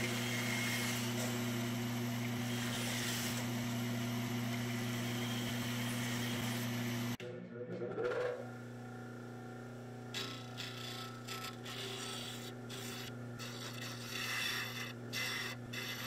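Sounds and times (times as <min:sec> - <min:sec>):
disc sander motor hum: 0:00.0 - 0:07.2, 0:08.5 - 0:16.0
wood grinding on sanding disc: 0:10.2 - 0:16.0.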